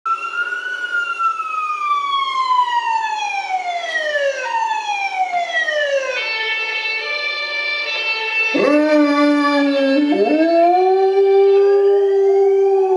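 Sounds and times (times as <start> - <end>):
siren wail from laptop speaker: 0.1 - 6.4, 8.5 - 12.9.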